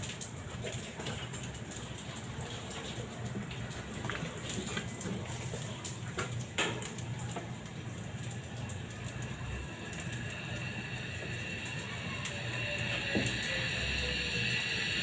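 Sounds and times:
low steady hum: 0.0 - 15.0
hiss of escaping vapour: 9.0 - 15.0.

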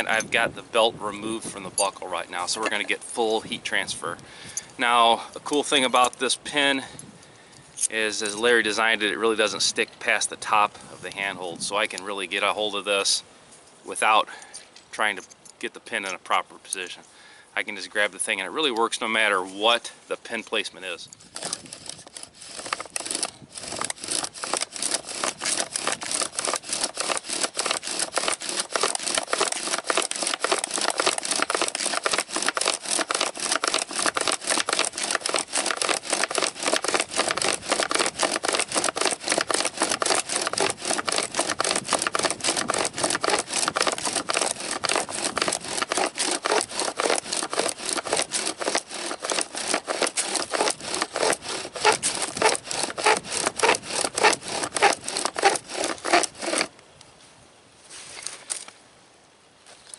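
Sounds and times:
bow drill rasping strokes: 0.0 - 0.5, 1.1 - 3.7, 21.2 - 56.7.

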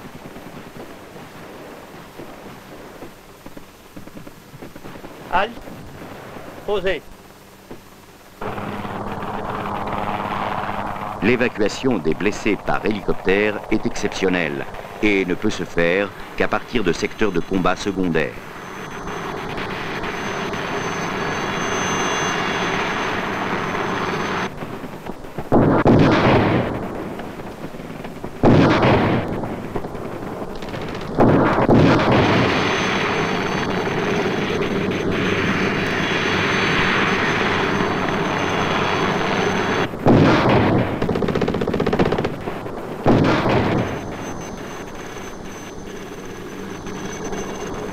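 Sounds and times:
rattling rifle and machine-gun fire: 0.0 - 6.6, 22.8 - 47.9
heavy blasts: 8.4 - 47.9.

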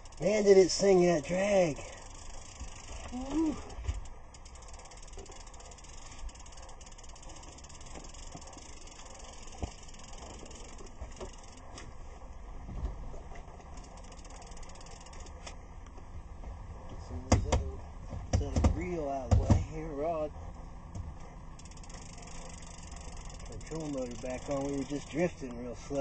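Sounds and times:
fishing reel clicking: 0.0 - 11.8, 13.7 - 15.6, 21.6 - 25.6.

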